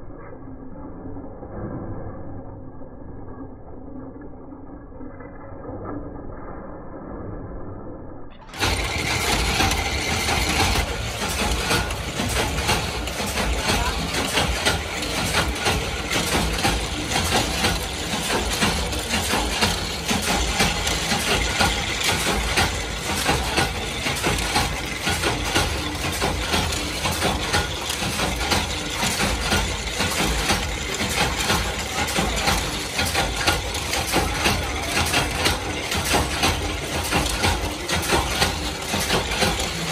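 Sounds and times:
machine metallic clatter: 8.4s - 39.9s.

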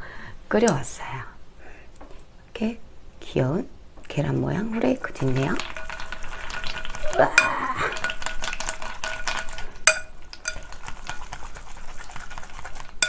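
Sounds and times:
wet sticky noodle stirring: 5.1s - 13.0s
chopsticks tapping glass bowl: 6.8s - 11.3s.

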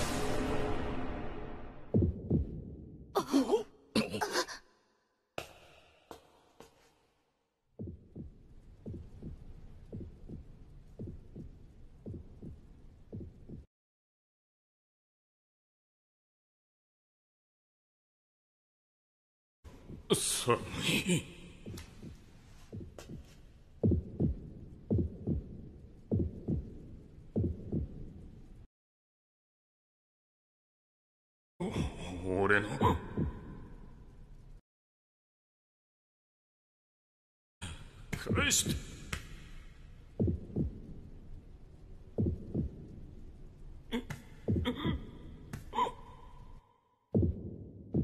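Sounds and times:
heartbeat thuds: 1.9s - 3.0s, 7.8s - 13.7s, 19.8s - 20.3s, 21.6s - 28.2s, 32.8s - 33.7s, 40.2s - 43.6s, 44.4s - 45.7s, 47.2s - 48.0s.

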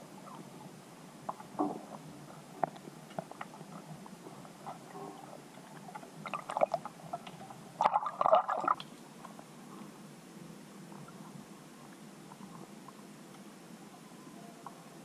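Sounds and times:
rush of water: 0.0s - 9.6s
faint underwater clicks: 1.2s - 9.5s
water gurgling underwater: 1.4s - 9.0s.

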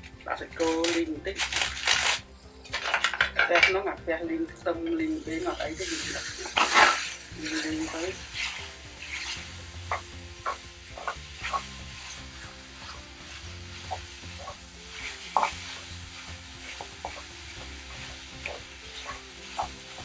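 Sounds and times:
meat sizzling in frying pan: 0.0s - 2.2s, 5.1s - 20.0s.

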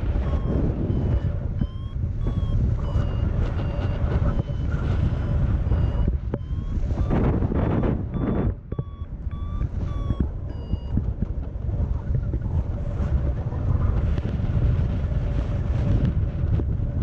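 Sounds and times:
variometer beeping: 0.0s - 12.4s
wind rushing over microphone: 0.0s - 17.0s.

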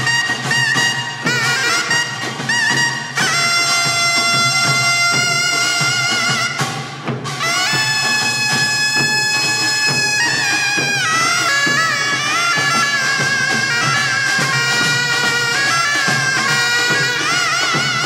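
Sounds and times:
double-reed shawm melody: 0.0s - 18.0s
drums beating: 0.0s - 18.0s.

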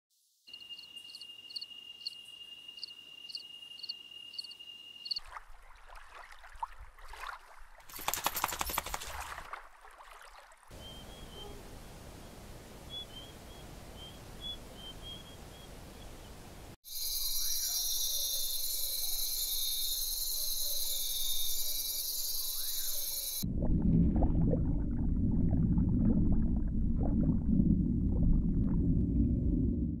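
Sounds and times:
crickets trilling: 0.5s - 5.2s, 16.9s - 23.4s
bubbling gurgles: 23.4s - 30.0s
underwater low rumble: 23.4s - 30.0s.

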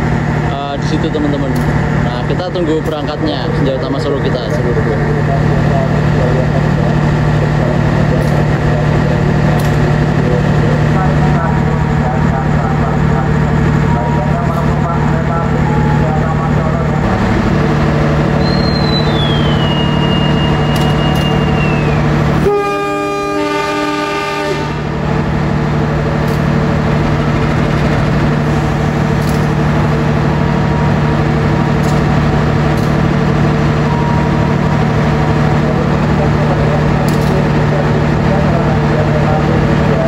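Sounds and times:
locomotive idling hum: 0.0s - 40.0s
thin descending whistle: 18.4s - 22.1s
train horn chord: 22.4s - 24.9s.

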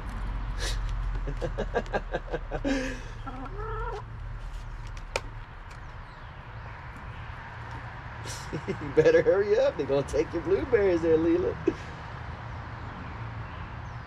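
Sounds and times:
hen clucking: 3.0s - 4.1s.

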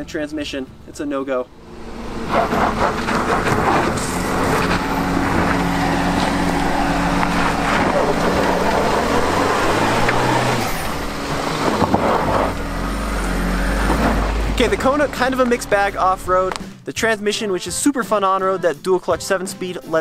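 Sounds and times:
car engine driving past: 1.5s - 16.6s
tyres crunching on gravel: 1.6s - 16.6s.

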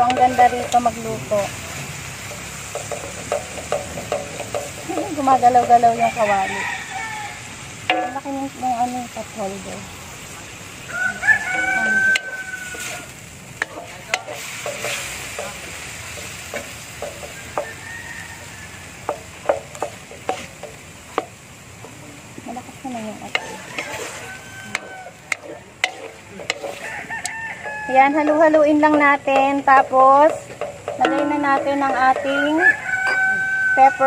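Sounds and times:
rooster crowing: 0.0s - 1.0s, 5.8s - 7.6s, 10.8s - 13.2s, 17.0s - 19.7s, 23.3s - 28.7s, 31.0s - 34.0s
spatula scraping and tapping metal: 0.0s - 1.0s, 2.2s - 5.8s, 7.9s - 8.3s, 12.1s - 22.0s, 23.2s - 33.9s
meat sizzling in a wok: 0.0s - 34.0s.

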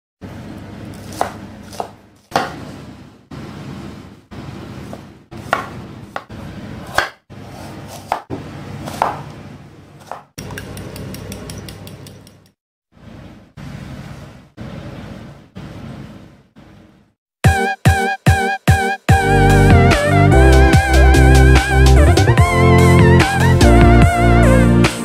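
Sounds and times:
knife chopping on wooden board: 0.9s - 2.6s, 4.9s - 9.3s, 10.0s - 12.0s.

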